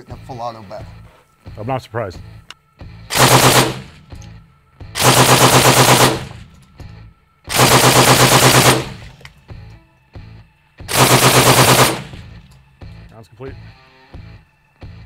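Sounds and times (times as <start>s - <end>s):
suppressed automatic rifle bursts: 3.1s - 4.0s, 5.0s - 6.5s, 7.5s - 9.1s, 10.9s - 12.3s.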